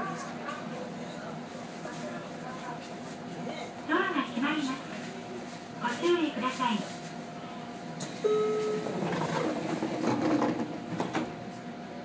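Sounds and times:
train doors sliding shut: 8.0 - 11.4
steady warning tone: 8.2 - 9.0.

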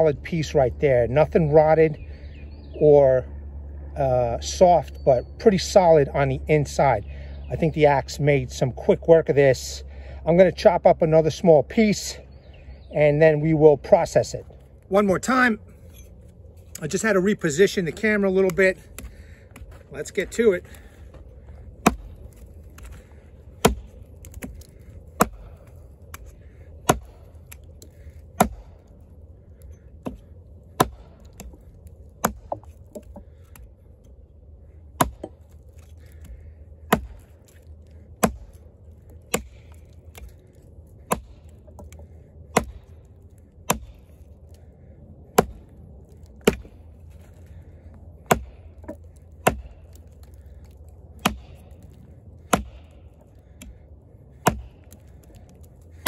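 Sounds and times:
axe chopping into log: 21.8 - 22.2, 23.6 - 26.2, 26.8 - 27.3, 28.4 - 28.7, 30.8 - 31.6, 32.2 - 33.2, 35.0 - 35.5, 36.9 - 37.6, 38.2 - 38.6, 39.3 - 40.3, 41.0 - 42.9, 43.7 - 44.0, 45.3 - 45.7, 46.4 - 46.8, 48.2 - 51.8, 52.4 - 56.0.

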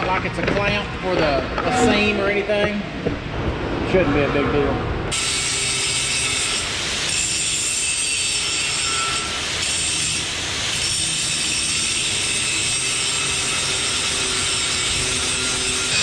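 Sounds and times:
angle grinder grinding steel: 5.1 - 16.0.

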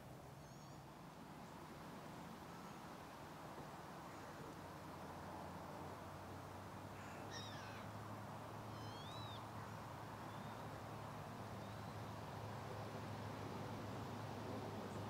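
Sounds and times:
thin bird calls: 0.4 - 0.9, 7.0 - 7.9, 8.7 - 10.6.

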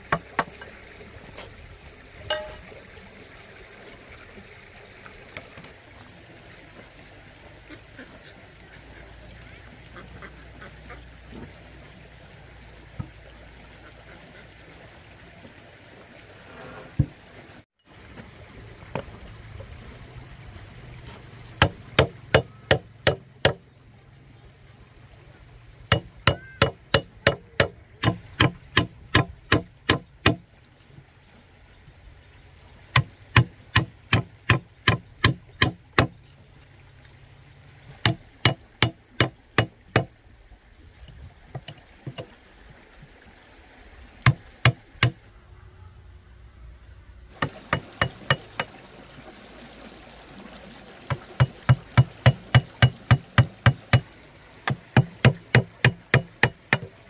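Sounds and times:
running water: 0.0 - 45.4, 47.3 - 57.0
hammering strikes: 25.9 - 30.4, 38.0 - 40.1, 47.4 - 48.7, 51.4 - 54.1, 54.7 - 56.9.

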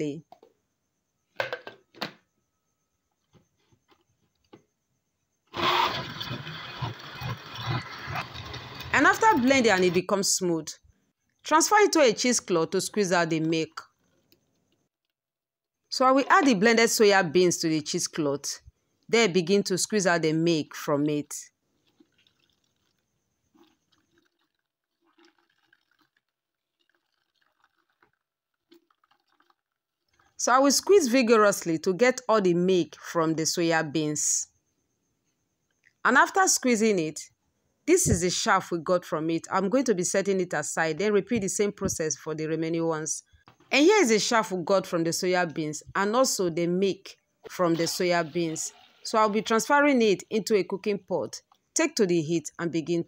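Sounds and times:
blender motor grinding: 5.5 - 10.0
wet squelches of cloth bag squeezed: 21.7 - 30.4.

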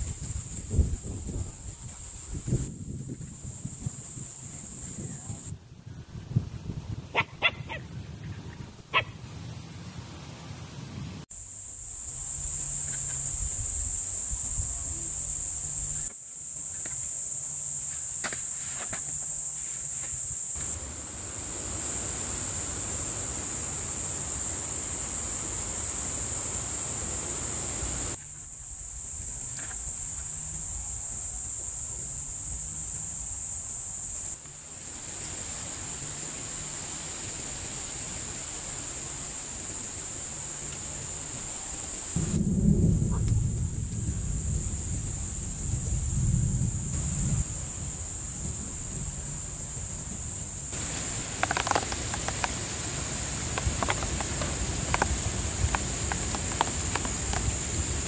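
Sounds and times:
high-pitched insect drone: 2.1 - 43.0.

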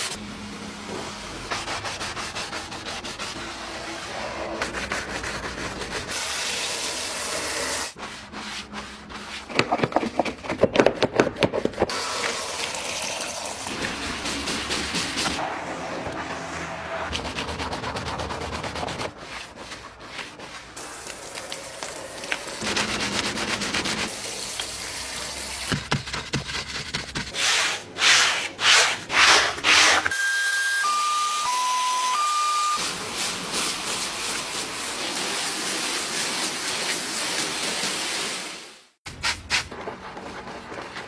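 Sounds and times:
brushes scrubbing foam: 0.9 - 10.2, 13.7 - 30.1, 32.8 - 38.5
short electronic tones: 30.1 - 32.8
hose water spray hissing: 32.8 - 38.8.

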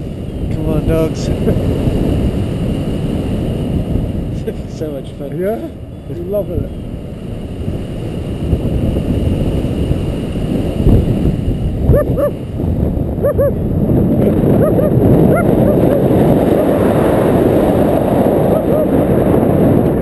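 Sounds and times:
wind rushing on microphone: 0.0 - 20.0
dog barking: 11.9 - 12.4, 13.2 - 13.6, 14.6 - 16.7, 18.5 - 18.9.

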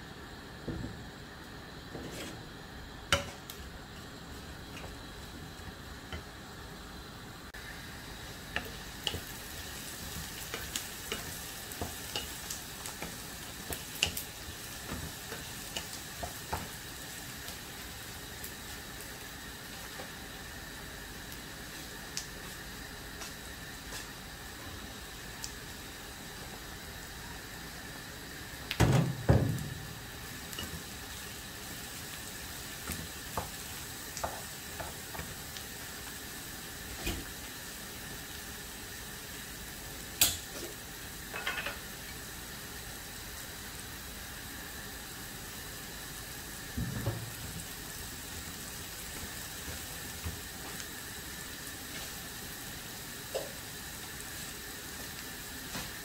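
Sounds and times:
vegetables sizzling in a pan: 0.0 - 56.0
wooden spatula scraping a pan: 1.9 - 2.5.

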